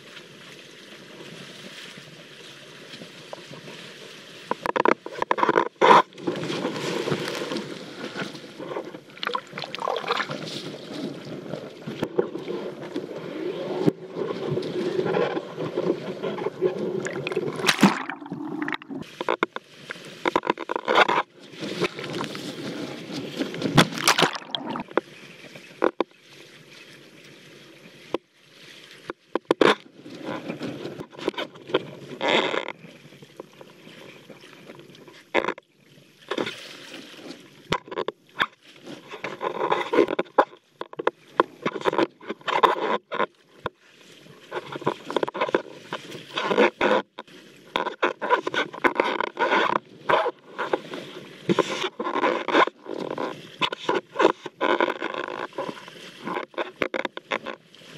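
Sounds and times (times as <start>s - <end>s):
water rushing and splashing: 0.0s - 35.6s.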